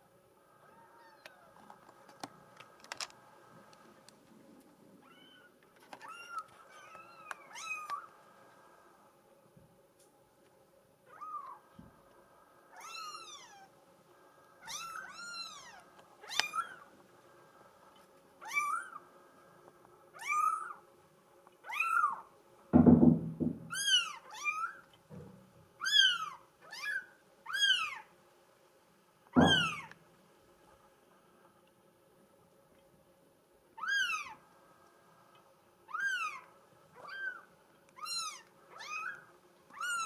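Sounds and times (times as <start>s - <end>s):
low thumps: 22.8s - 23.8s, 29.4s - 29.9s
kitten mewing: 29.4s - 29.9s.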